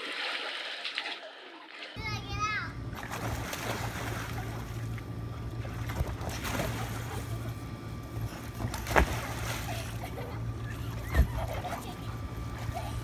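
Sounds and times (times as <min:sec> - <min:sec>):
water sloshing and splashing: 0:00.0 - 0:02.0, 0:02.9 - 0:07.6, 0:08.2 - 0:13.0
steady low hum: 0:02.0 - 0:13.0
dog leaping out splash: 0:05.9 - 0:07.2.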